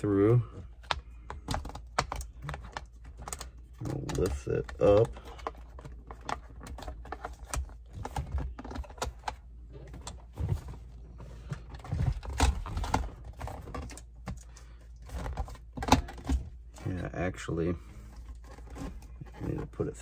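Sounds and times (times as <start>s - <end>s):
plastic parts clicking and knocking: 0.5s - 10.8s, 11.4s - 17.0s.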